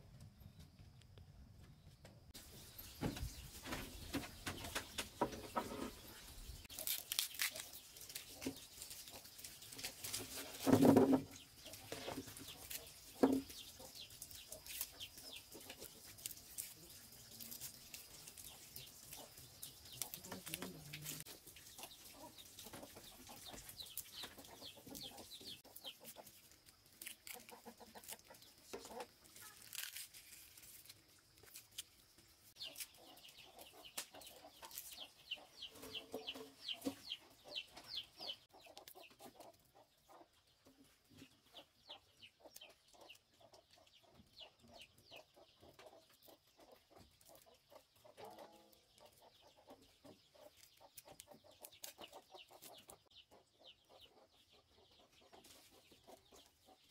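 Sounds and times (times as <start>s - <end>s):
chickens clucking: 2.0s - 7.0s, 7.6s - 29.6s, 32.0s - 56.9s
garlic skins being peeled: 4.6s - 36.9s, 45.9s - 53.1s.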